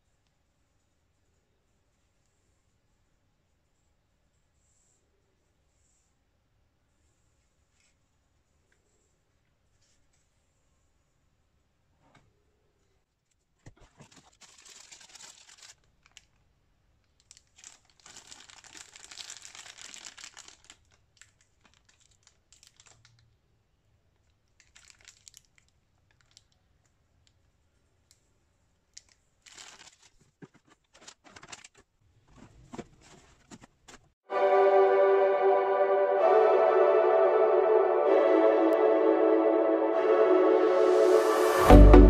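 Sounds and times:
packaging crinkling: 0:13.9 - 0:16.4, 0:17.2 - 0:23.2, 0:24.6 - 0:26.6, 0:29.0 - 0:31.9.

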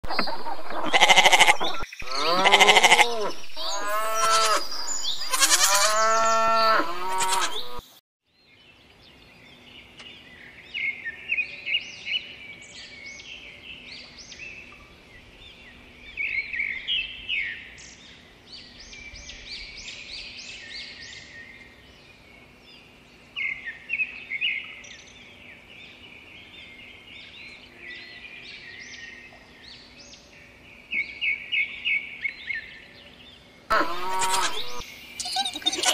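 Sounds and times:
small birds chirping: 0:00.1 - 0:07.9, 0:08.5 - 0:35.9
sheep bleating: 0:00.8 - 0:07.8, 0:33.7 - 0:34.8.

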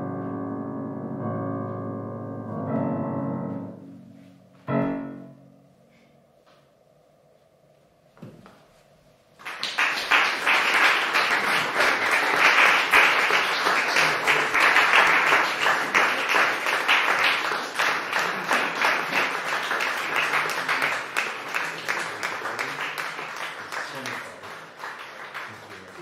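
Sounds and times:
audience applause: 0:09.4 - 0:26.0.

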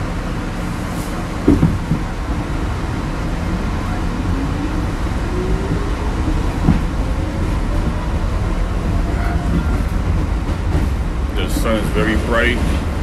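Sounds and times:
subway car clunks: 0:00.0 - 0:13.0
train rumble: 0:00.0 - 0:13.0.

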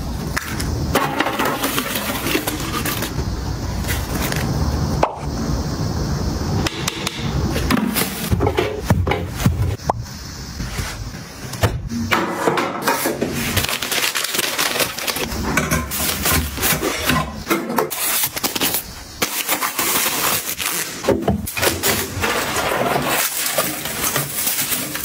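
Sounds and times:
items tapping and knocking: 0:06.7 - 0:10.0, 0:11.6 - 0:18.2
packaging and plastic rustling: 0:13.0 - 0:17.2, 0:17.9 - 0:25.0.

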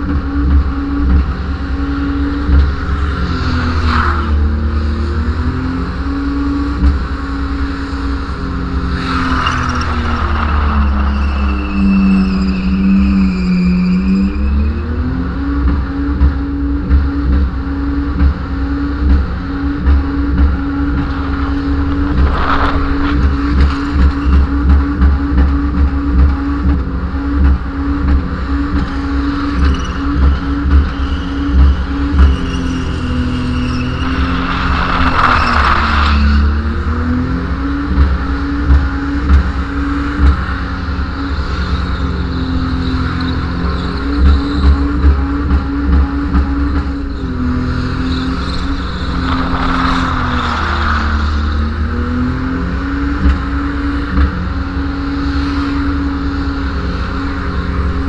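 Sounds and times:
car engine revving high: 0:00.1 - 0:58.0.

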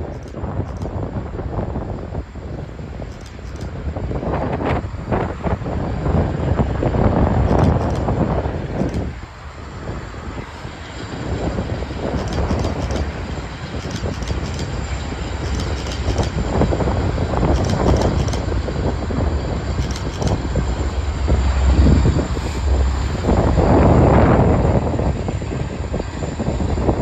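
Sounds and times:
sharp clicks: 0:00.0 - 0:01.0, 0:03.1 - 0:03.8, 0:07.5 - 0:08.1, 0:08.8 - 0:09.1, 0:12.1 - 0:13.1, 0:13.8 - 0:14.7, 0:15.4 - 0:16.4, 0:17.5 - 0:18.5, 0:19.8 - 0:20.4
freight train rumbling over bridge: 0:00.0 - 0:27.0.

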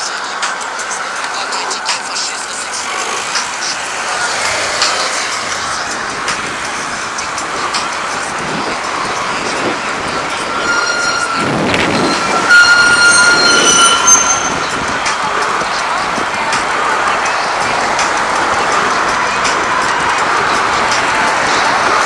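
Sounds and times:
bicycle road noise: 0:00.0 - 0:22.0
rushing wind: 0:00.0 - 0:22.0
high squeal: 0:07.6 - 0:17.5.

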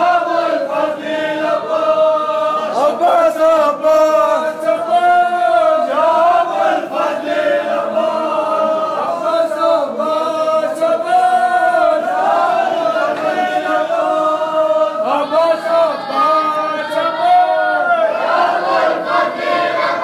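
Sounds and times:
group of men chanting: 0:00.0 - 0:20.0.

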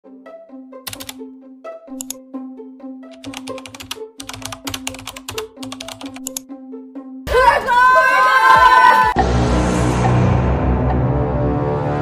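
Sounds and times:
light intro music: 0:00.0 - 0:07.3
computer keyboard typing: 0:00.9 - 0:01.2, 0:03.1 - 0:06.4.

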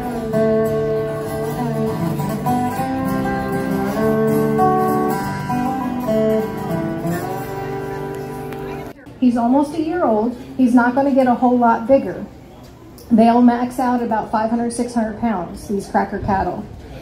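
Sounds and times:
acoustic guitar playing: 0:00.0 - 0:12.0.

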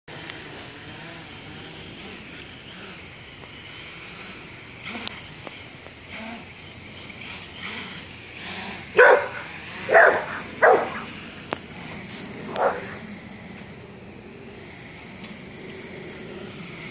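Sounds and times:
drone motors whining: 0:00.1 - 0:16.9
dog barking: 0:09.0 - 0:11.1, 0:12.5 - 0:13.0.

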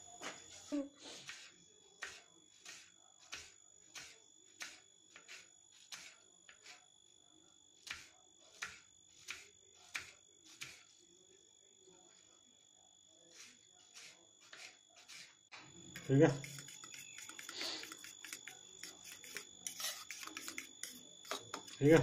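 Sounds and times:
knife slicing onion on board: 0:01.2 - 0:06.8, 0:07.8 - 0:11.0, 0:13.3 - 0:22.0.

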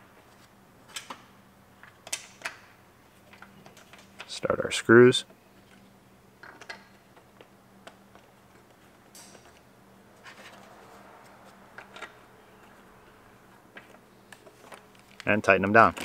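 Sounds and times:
faint steady hum: 0:00.0 - 0:16.0
clicks and taps of handling screws: 0:06.4 - 0:09.6.

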